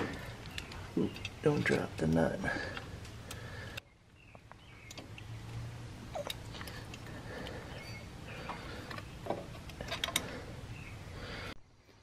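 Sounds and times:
metal fasteners clicking: 0.0s - 3.8s, 7.8s - 10.4s.

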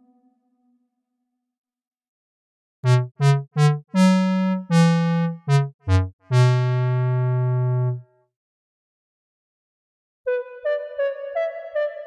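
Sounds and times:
synthesized keyboard melody: 2.8s - 8.0s, 10.3s - 12.0s.

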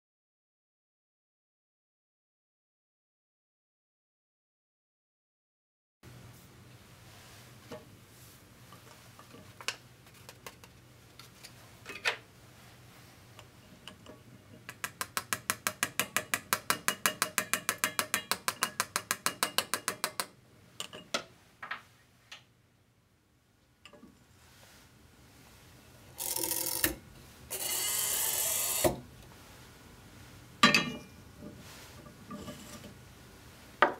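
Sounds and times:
metal spatula tapping funnel: 13.8s - 21.0s.

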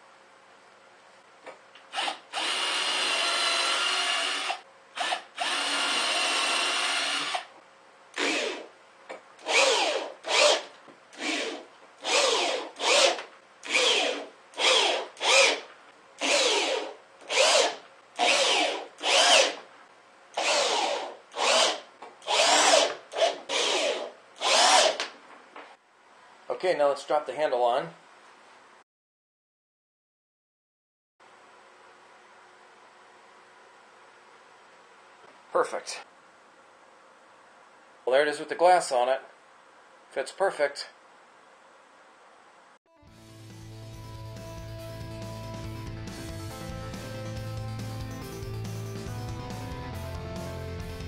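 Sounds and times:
electric drill into plywood: 1.9s - 7.5s, 8.1s - 8.7s, 9.4s - 19.7s, 20.3s - 25.1s.

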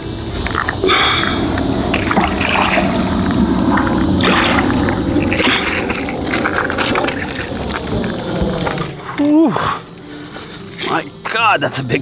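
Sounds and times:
fish thrashing and splashing in water: 0.1s - 9.2s.

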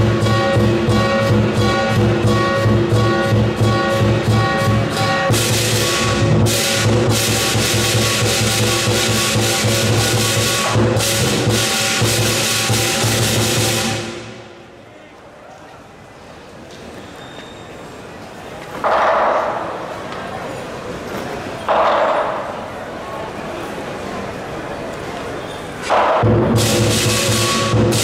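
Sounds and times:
big drum beating: 0.0s - 14.6s, 26.2s - 28.0s
gong ringing: 0.0s - 14.6s
cymbals crashing: 0.0s - 14.7s, 25.8s - 28.0s.

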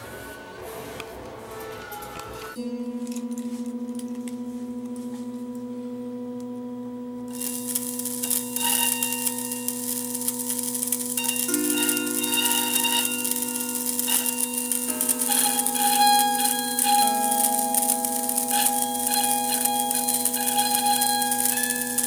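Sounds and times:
high ringing tones: 0.0s - 22.0s
pure humming drone: 0.0s - 22.0s
hissing rattling noise: 7.3s - 22.0s.

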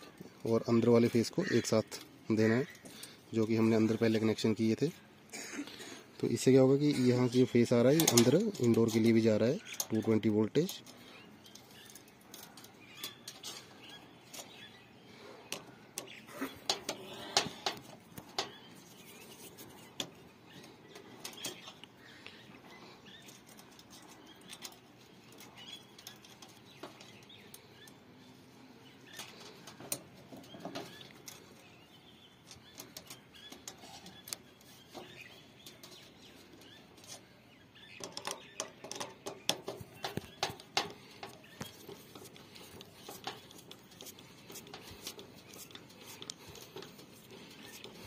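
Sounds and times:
clicks and taps of tools: 15.5s - 18.6s, 38.0s - 47.1s.

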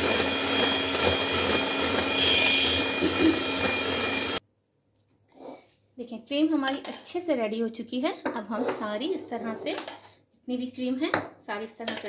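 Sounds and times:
electric hand mixer whirring: 0.0s - 4.4s.

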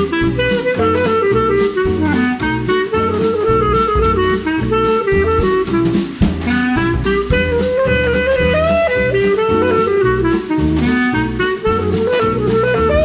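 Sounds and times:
background music with beat: 0.0s - 13.0s.

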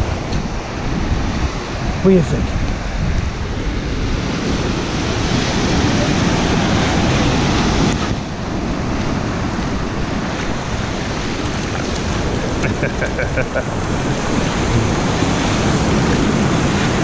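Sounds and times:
ocean surf breaking: 0.0s - 17.0s
wind buffeting microphone: 0.0s - 17.0s.

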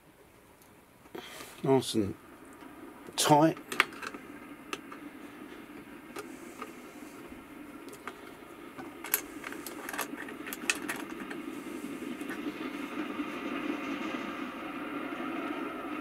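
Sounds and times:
steady low hum: 0.0s - 16.0s
small metallic clicks and scrapes: 7.9s - 11.4s.

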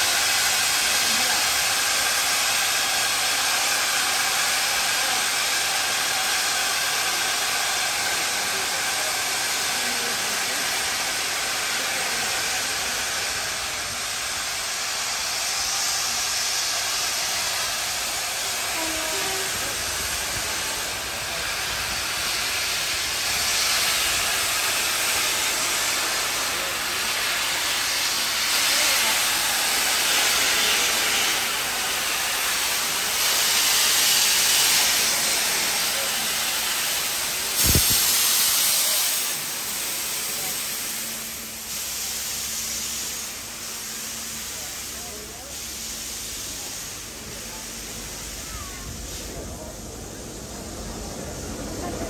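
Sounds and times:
steam locomotive hissing: 0.0s - 52.0s.

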